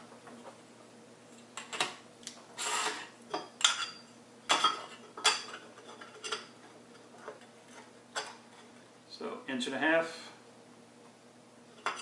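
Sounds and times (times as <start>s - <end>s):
short scrape: 2.6s - 3.1s.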